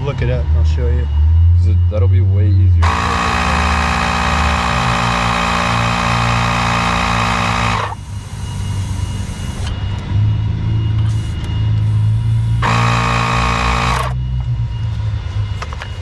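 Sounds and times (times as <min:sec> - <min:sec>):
low engine-like rumble: 0:00.0 - 0:05.3, 0:08.0 - 0:12.6, 0:14.1 - 0:16.0
machine hum: 0:00.0 - 0:16.0.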